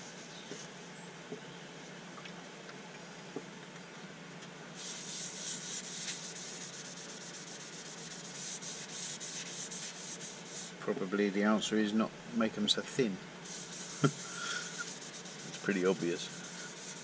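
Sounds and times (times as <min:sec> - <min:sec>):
paper towel wiping wood: 0:04.8 - 0:10.8, 0:13.4 - 0:17.0.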